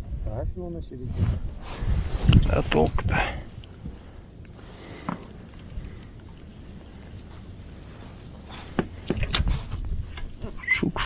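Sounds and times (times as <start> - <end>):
wind rumbling on microphone: 0.0 - 11.0.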